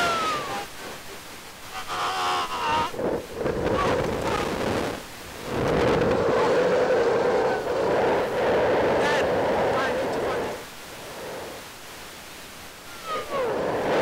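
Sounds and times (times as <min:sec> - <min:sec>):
wind buffeting microphone: 0:02.8 - 0:11.6, 0:13.0 - 0:14.0.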